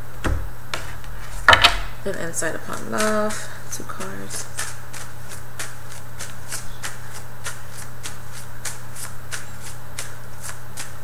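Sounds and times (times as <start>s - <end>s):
low constant hum: 0.0s - 11.0s
cards being shuffled: 2.7s - 11.0s.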